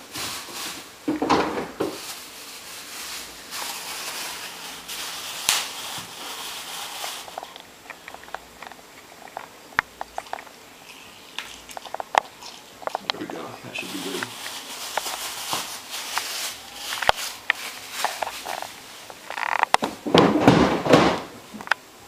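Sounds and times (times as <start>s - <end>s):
kitchen handling rustle: 0.0s - 21.6s
lemon squeezed by hand crackling: 2.8s - 19.7s.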